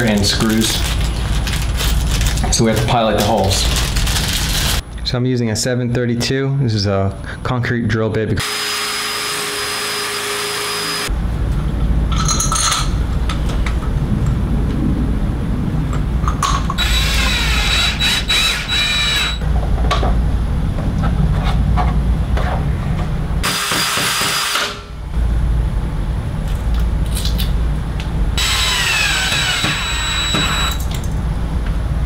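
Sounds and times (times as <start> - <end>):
low rumble: 13.0 - 18.8
cordless drill whining: 16.8 - 19.4, 28.4 - 30.8.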